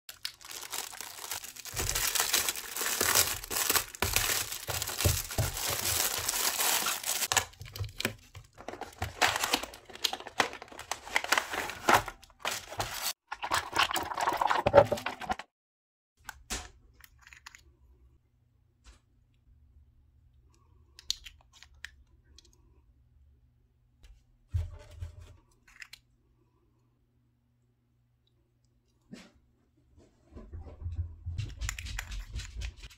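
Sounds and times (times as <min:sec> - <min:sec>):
plastic wrap crinkling and tearing: 0:00.1 - 0:13.2.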